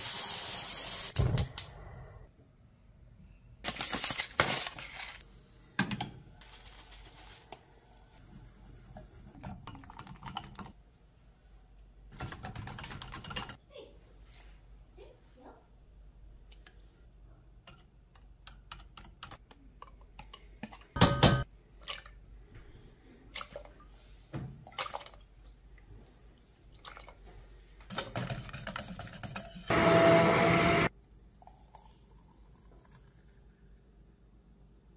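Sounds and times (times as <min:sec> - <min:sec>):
whisk scraping glass bowl: 0:28.0 - 0:29.7.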